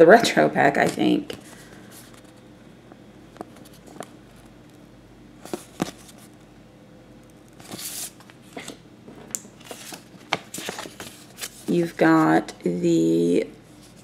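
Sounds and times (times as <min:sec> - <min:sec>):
sticker sheet rustling: 0:09.6 - 0:11.9.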